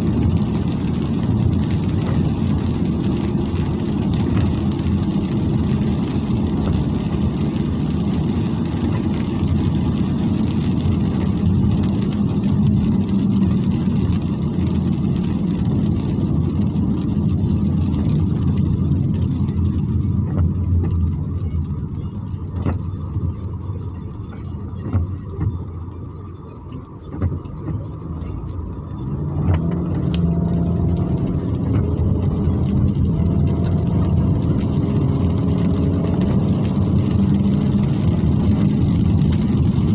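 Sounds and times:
car engine: 0.0s - 39.9s
road and tyre noise: 0.0s - 39.9s.

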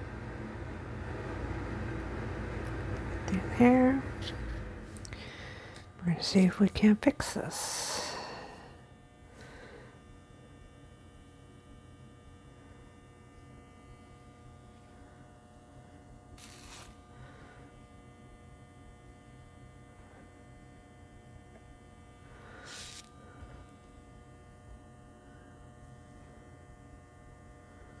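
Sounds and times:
electrical hum: 0.0s - 28.0s
soft hiss: 16.4s - 17.0s, 22.4s - 23.4s.

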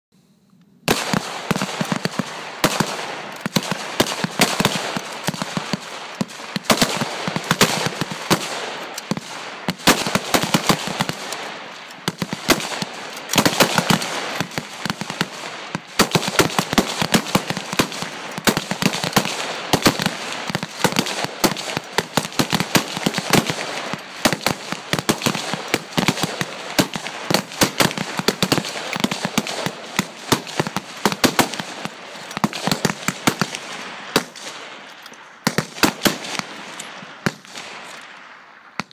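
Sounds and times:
rifle shots overlapping: 0.2s - 38.9s.

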